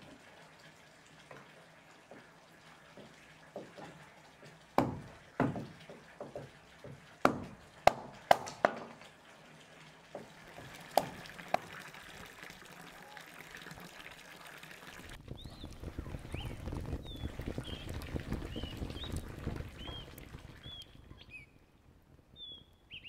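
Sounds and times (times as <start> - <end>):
hatchet splitting wood knocks: 4.8 - 9.0.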